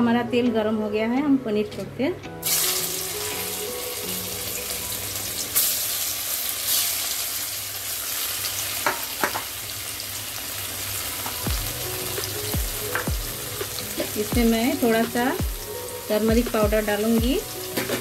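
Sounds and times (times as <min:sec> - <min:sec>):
cheese cubes sizzling in oil: 0:02.4 - 0:16.3.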